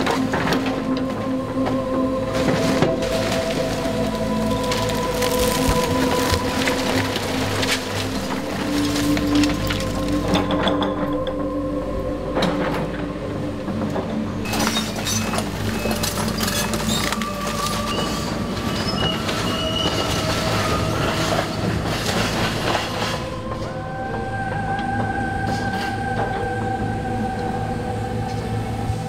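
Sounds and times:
timber cracking and crashing: 0.0 - 11.1, 14.4 - 23.6
excavator engine and hydraulics: 0.0 - 29.0
steel tracks clanking and squealing: 0.0 - 29.0.

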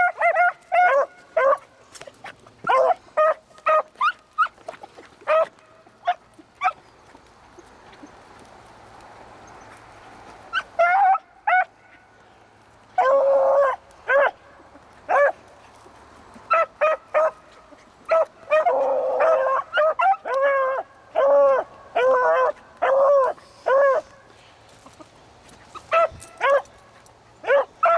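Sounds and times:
hounds barking: 0.0 - 4.6, 5.2 - 6.9, 10.5 - 12.0, 12.9 - 15.8, 16.4 - 24.2, 25.7 - 27.9
hounds baying: 0.0 - 8.3, 10.5 - 12.0, 12.9 - 27.9.

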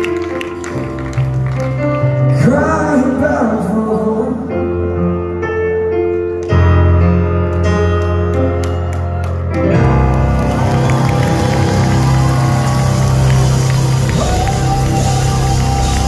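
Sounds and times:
piano chords: 0.0 - 16.0
man singing: 2.3 - 4.8, 13.8 - 16.0.

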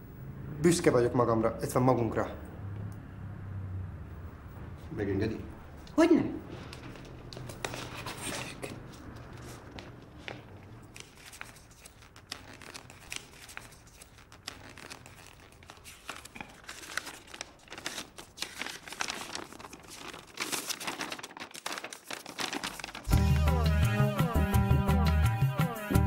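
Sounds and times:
paper crinkling and rustling: 6.5 - 23.2.

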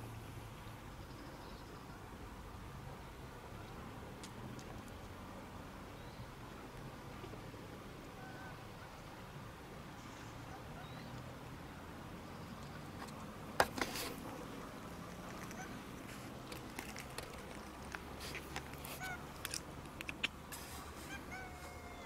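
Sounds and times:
faint high animal calls: 8.2 - 8.9, 18.9 - 19.3, 21.0 - 22.0
sharp clicks: 19.4 - 20.4.

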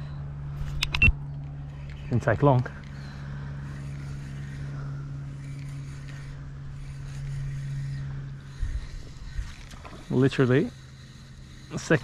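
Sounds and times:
spinning reel whirring: 0.0 - 12.0.

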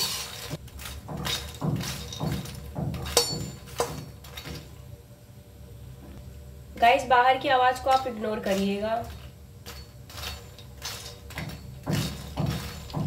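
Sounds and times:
metal spatula scraping metal pan: 0.0 - 2.2, 7.8 - 13.0.

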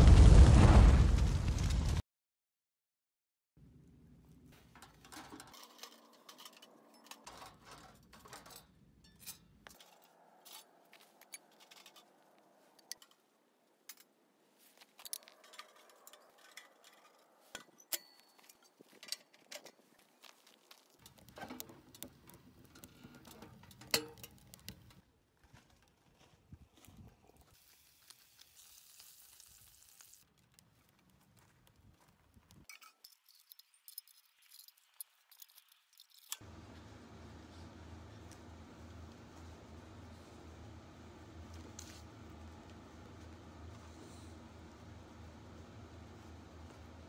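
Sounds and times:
metal parts clinking and knocking: 4.6 - 12.2, 15.0 - 19.8, 21.0 - 25.0, 32.6 - 36.4.

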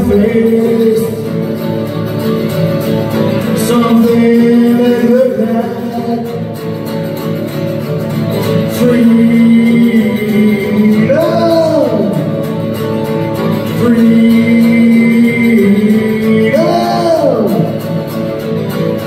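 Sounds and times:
man singing: 0.0 - 1.9, 3.3 - 6.8, 8.4 - 18.2
acoustic guitar strumming: 0.0 - 19.0.

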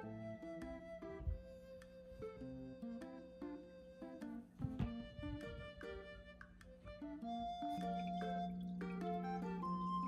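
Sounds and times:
quiet string background music: 2.5 - 10.0.

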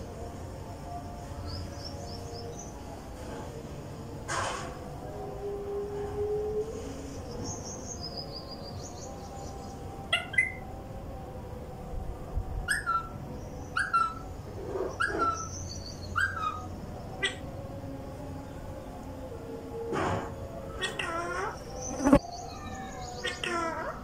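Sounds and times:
parakeets chirping: 13.7 - 17.5, 20.7 - 24.0.

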